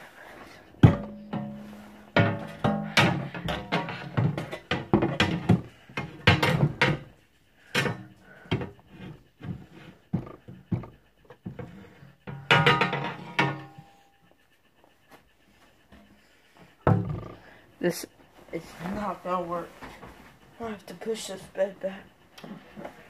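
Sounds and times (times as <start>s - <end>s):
household objects knocking: 0.8s - 7.1s, 9.4s - 13.6s, 16.8s - 17.4s.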